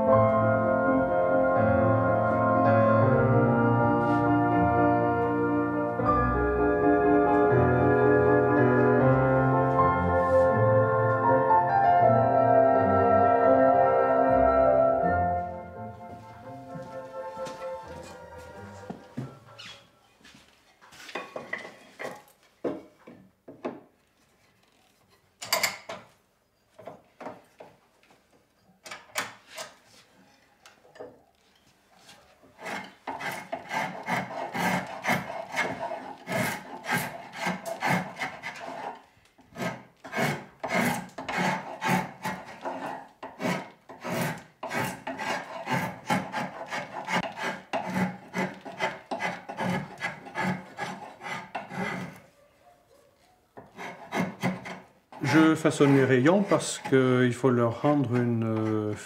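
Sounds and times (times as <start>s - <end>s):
spokeshave scraping wood: 32.0s - 52.3s, 53.6s - 59.0s.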